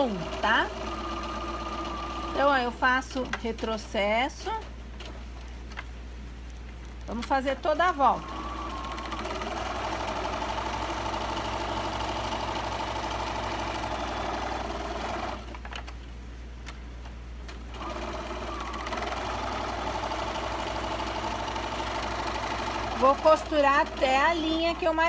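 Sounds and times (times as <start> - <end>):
sewing machine stitching: 0.0 - 2.6, 7.8 - 15.6, 17.7 - 25.0.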